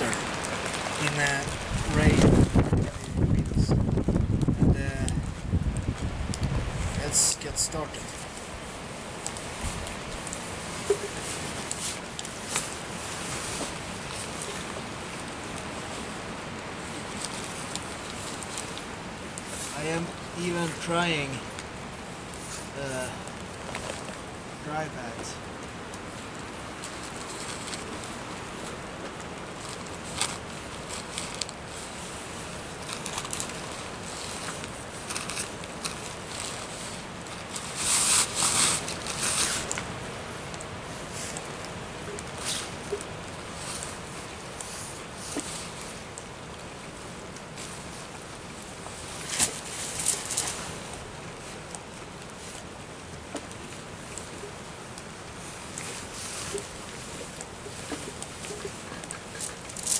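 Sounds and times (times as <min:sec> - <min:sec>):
heavy rain: 0:00.0 - 0:59.9
wind: 0:00.0 - 0:59.9
sharp ticks and rustles: 0:17.0 - 0:59.9.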